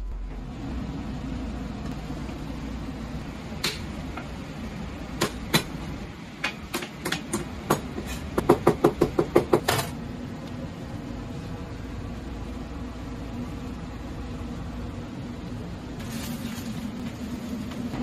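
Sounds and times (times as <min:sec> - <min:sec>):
low hum: 0:00.0 - 0:05.1.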